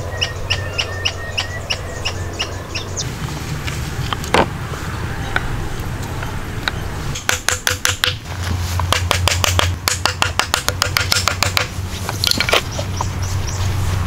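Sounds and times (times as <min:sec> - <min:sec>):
hatchet tapping wooden logs: 0:06.1 - 0:13.2.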